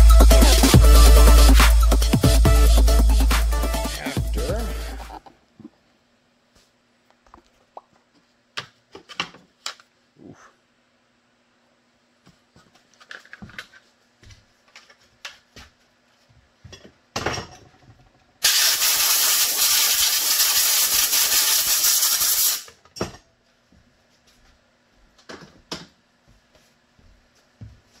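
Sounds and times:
compressed air blow gun hissing: 18.4s - 22.7s.

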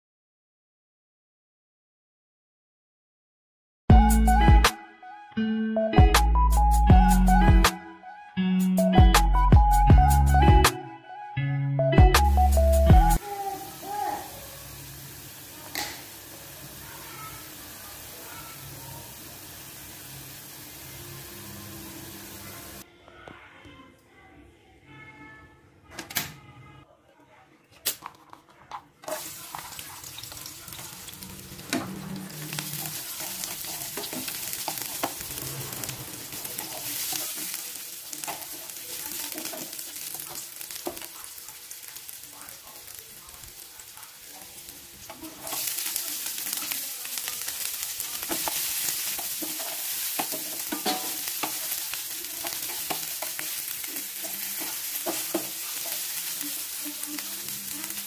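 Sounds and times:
shallots sizzling in hot oil: 13.2s - 22.8s, 29.1s - 58.0s
wooden spatula scraping pan: 31.6s - 37.6s.

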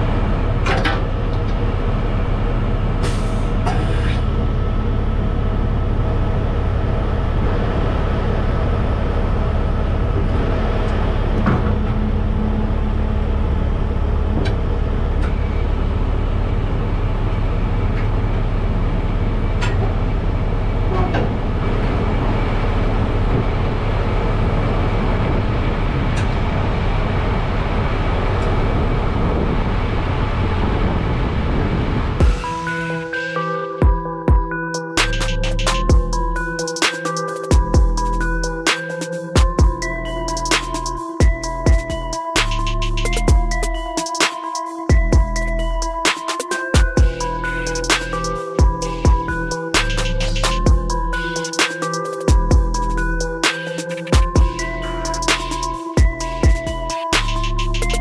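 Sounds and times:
diesel engine idling: 0.0s - 36.7s, 46.8s - 51.6s, 52.3s - 53.5s.

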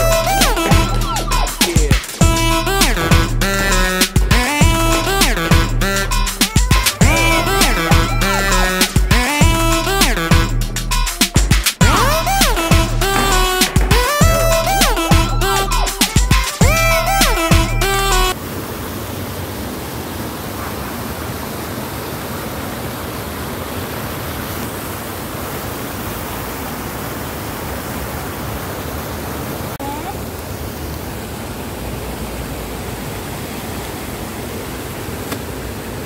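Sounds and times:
music: 0.0s - 18.4s
fountain water splashing: 18.3s - 36.0s.

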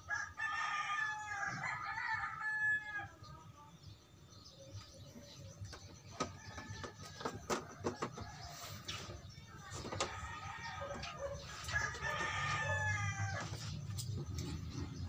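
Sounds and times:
rooster crowing: 0.0s - 3.1s, 10.0s - 13.8s.

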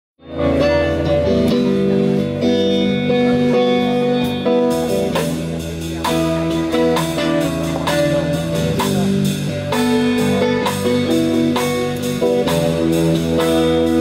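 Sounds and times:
bass line: 0.2s - 14.0s
electric guitar chords: 0.2s - 14.0s
drum and cymbal hits: 4.0s - 14.0s.

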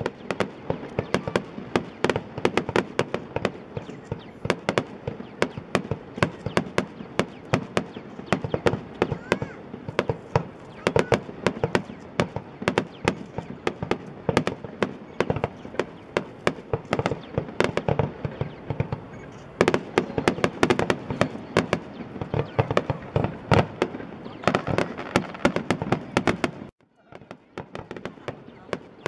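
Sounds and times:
fireworks bangs and crackles: 0.0s - 29.0s.

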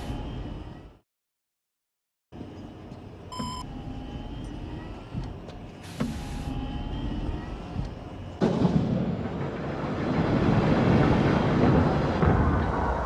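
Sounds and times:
low mechanical rumble: 2.4s - 13.0s
electronic beep: 3.3s - 3.7s
hiss with thump: 5.8s - 6.6s.

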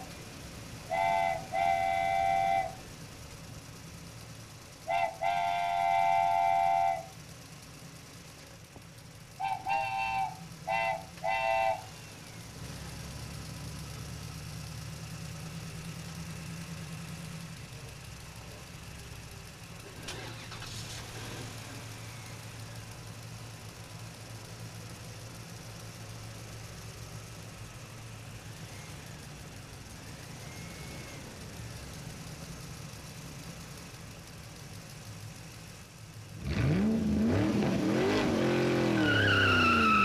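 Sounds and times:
engine running with low hum: 0.0s - 40.0s
vehicle horn honking: 0.9s - 2.8s, 4.9s - 7.1s, 9.4s - 11.9s.

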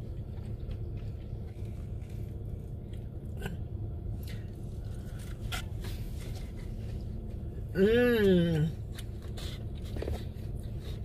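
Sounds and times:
chewing: 0.0s - 3.6s
steady low hum: 0.0s - 11.0s.

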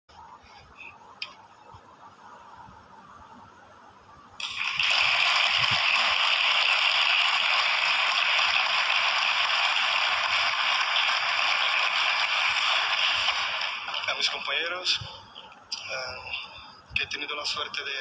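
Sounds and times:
audience applause: 4.4s - 14.5s.

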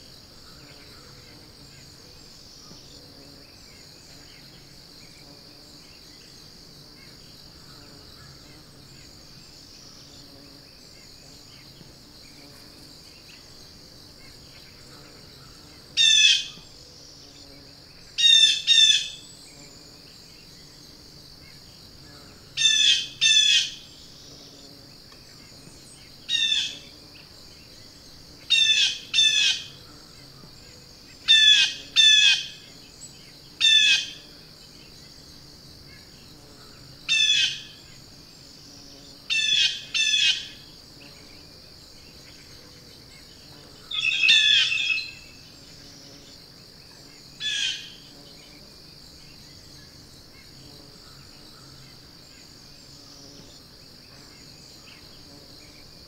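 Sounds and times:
insects droning: 0.0s - 56.0s
blue jay calls: 28.5s - 29.8s, 31.3s - 32.6s, 33.6s - 34.2s, 37.1s - 37.8s, 39.3s - 40.6s, 43.9s - 45.3s, 47.4s - 48.0s.

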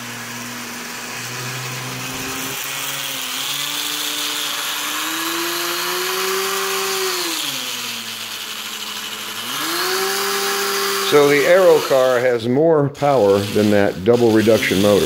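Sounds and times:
toy train motor whining: 0.0s - 12.4s, 13.0s - 15.0s
small motor buzzing hiss: 1.0s - 12.2s.

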